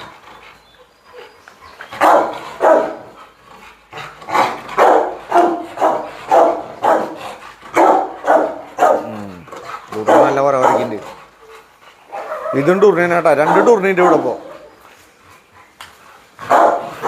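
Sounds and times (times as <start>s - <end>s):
dog barking: 2.0s - 3.1s, 4.3s - 9.1s, 10.0s - 11.0s, 12.1s - 12.7s, 13.4s - 14.6s, 16.4s - 17.0s.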